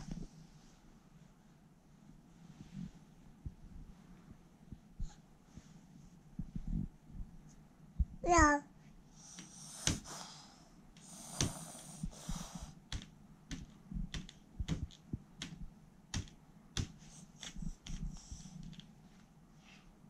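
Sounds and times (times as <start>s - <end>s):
sharp clicks and taps: 12.9s - 18.0s.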